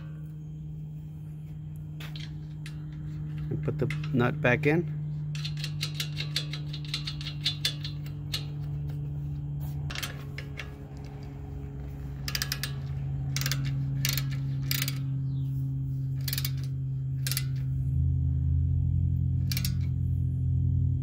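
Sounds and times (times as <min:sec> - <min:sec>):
low hum: 0:00.0 - 0:21.0
hand ratchet clicking: 0:02.0 - 0:09.1, 0:09.9 - 0:17.8, 0:19.4 - 0:20.0.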